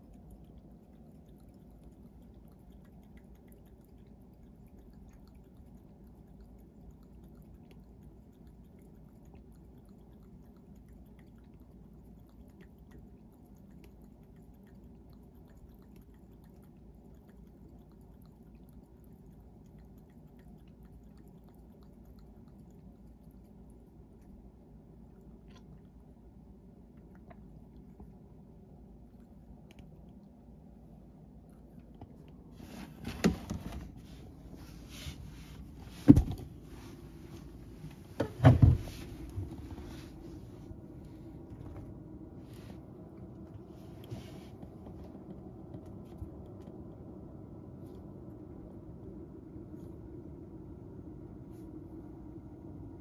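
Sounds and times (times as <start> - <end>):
cat lapping water: 0.0 - 41.7
steady low hum: 0.0 - 53.0
soft rustling and brushing: 32.2 - 42.9, 43.5 - 45.2.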